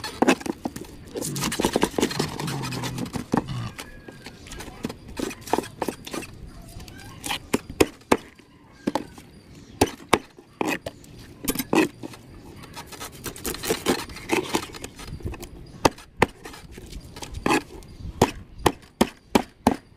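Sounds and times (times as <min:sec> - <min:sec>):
knife scraping fish scales: 0:11.5 - 0:15.1.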